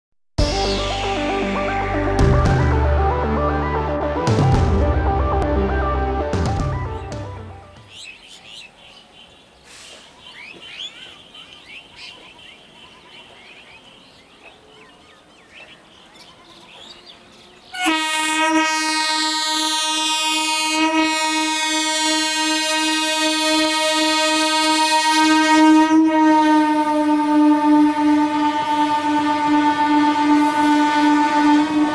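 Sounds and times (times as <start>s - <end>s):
train horn long blast: 17.7s - 31.9s.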